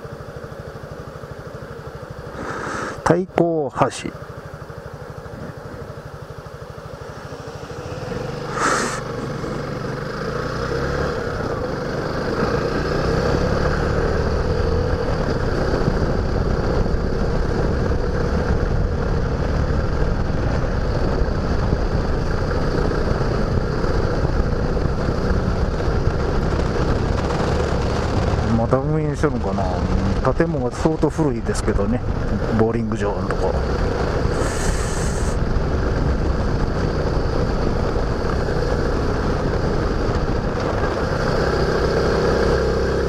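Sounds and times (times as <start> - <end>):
motorcycle engine idling and pulling away: 0.0 - 43.0
road and wind noise: 0.0 - 43.0
short hiss: 2.4 - 3.0, 8.5 - 9.1, 34.4 - 35.4.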